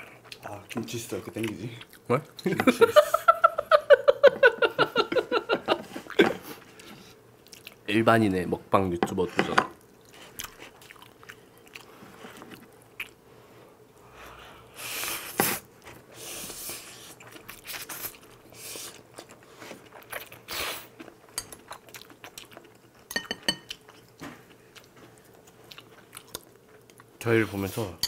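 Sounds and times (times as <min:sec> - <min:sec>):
wet chewing: 0:16.9 - 0:27.1.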